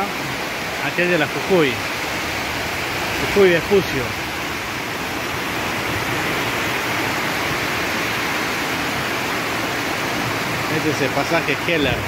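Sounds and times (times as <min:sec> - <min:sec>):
floodwater rushing down street: 0:00.0 - 0:12.0
heavy rain: 0:00.0 - 0:12.0.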